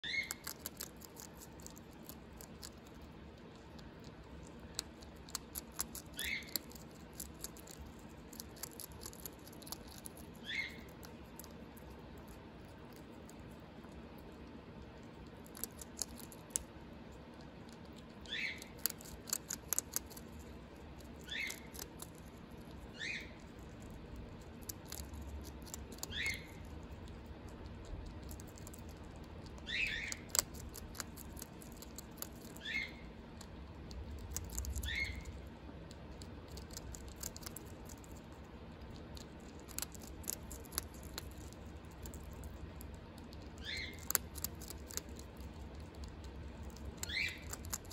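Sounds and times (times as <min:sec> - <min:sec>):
animal crunching dry kibble: 0:00.0 - 0:47.9.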